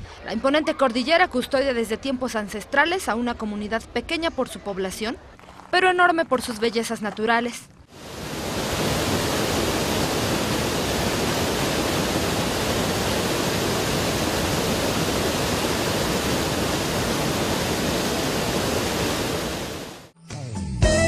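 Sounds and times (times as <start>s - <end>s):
waterfall splashing into pool: 8.0s - 20.1s.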